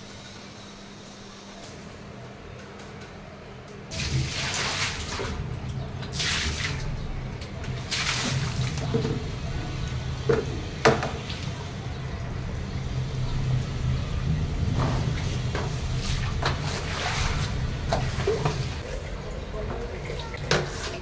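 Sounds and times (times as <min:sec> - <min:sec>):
water splashing onto tiled floor: 0:03.9 - 0:10.0, 0:10.8 - 0:18.8
broom scrubbing wet tiles: 0:14.7 - 0:19.1.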